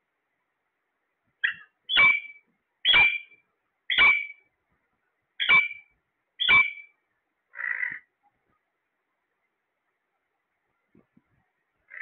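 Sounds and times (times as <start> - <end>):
parakeet shrill calls: 1.4 - 4.4, 5.4 - 8.0.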